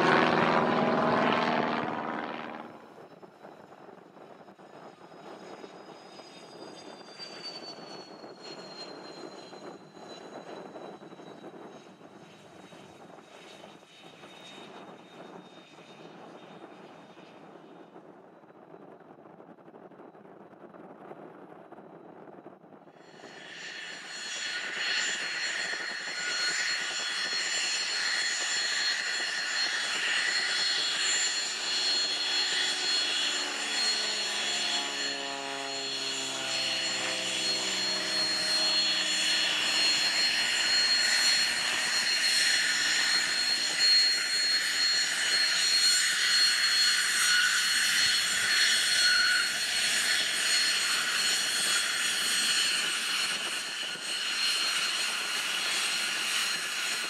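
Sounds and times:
lower tone sweeping downward: 0.0 - 3.1, 23.4 - 50.1
rush of engine noise: 0.0 - 3.3, 23.0 - 54.1
jet engines whining: 0.0 - 17.3, 23.0 - 57.0.

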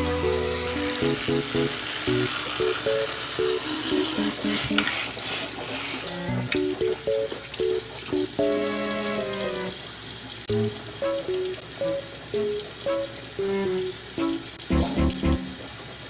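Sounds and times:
plucked bouncing melody: 0.0 - 4.8, 10.5 - 15.7
running water hiss: 0.0 - 16.0.

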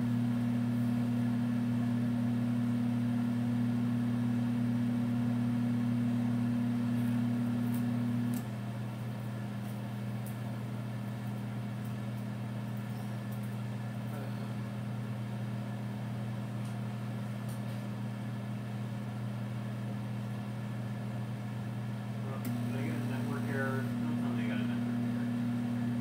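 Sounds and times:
microwave oven humming: 0.0 - 26.0.

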